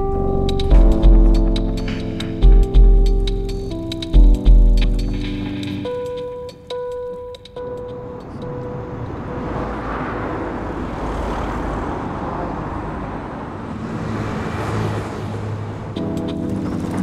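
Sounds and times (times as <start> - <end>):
cars driving past: 7.6 - 17.0
low engine hum: 7.6 - 17.0.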